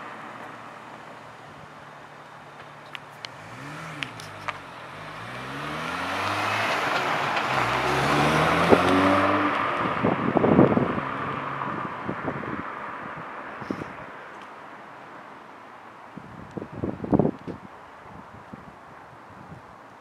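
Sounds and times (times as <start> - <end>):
car accelerating past: 3.3 - 12.0.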